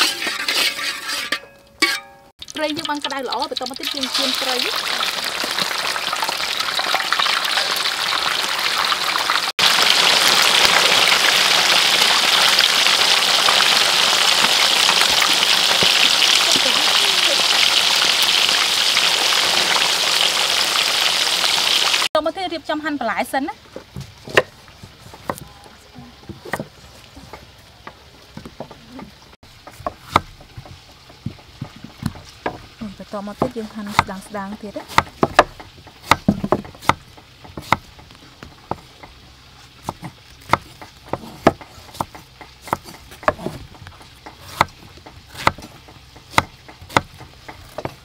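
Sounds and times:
fish sizzling in hot oil: 0:02.4 - 0:22.1.

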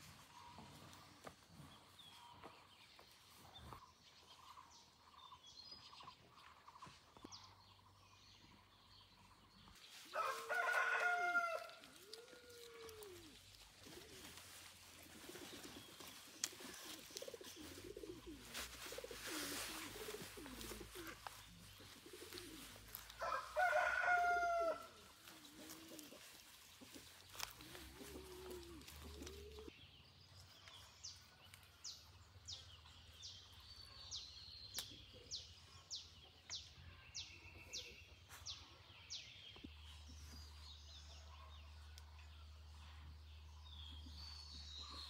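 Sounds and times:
rooster crowing: 0:10.2 - 0:11.8, 0:23.2 - 0:24.9.

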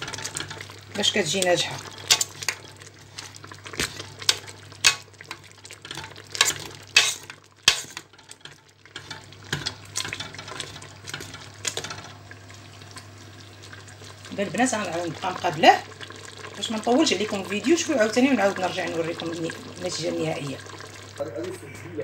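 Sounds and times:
wire stirrer scraping metal pot: 0:00.0 - 0:12.2.

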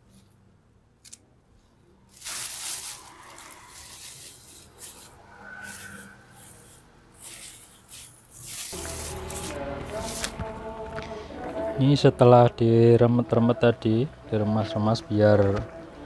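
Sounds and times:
plastic bag crinkling: 0:02.1 - 0:05.8, 0:06.6 - 0:11.2.

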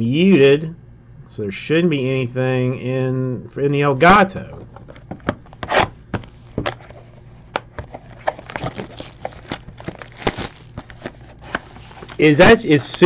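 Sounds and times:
plastic wrap crinkling: 0:04.9 - 0:12.2.

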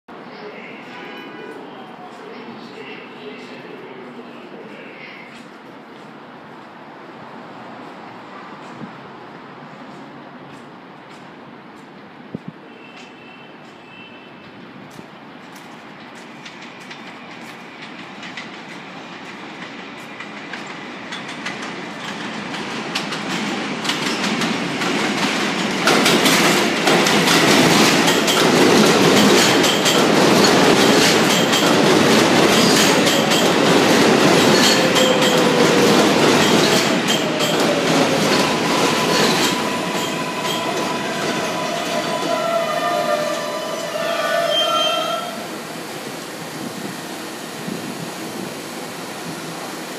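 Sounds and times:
train wheels and brakes squealing: 0:12.6 - 0:14.7, 0:32.5 - 0:33.6, 0:34.4 - 0:45.8
train wheels clattering over rail joints: 0:15.6 - 0:41.1.

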